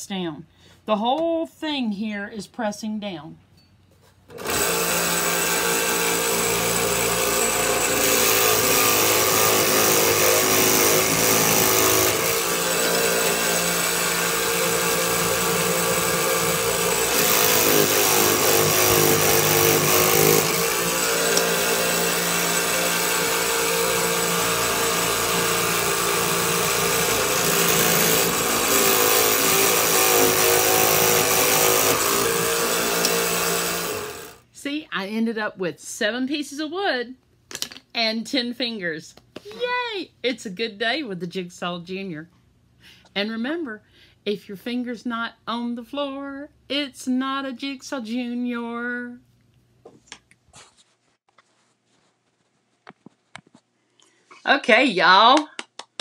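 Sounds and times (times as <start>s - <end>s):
toy scroll saw cutting wood: 4.3s - 34.4s.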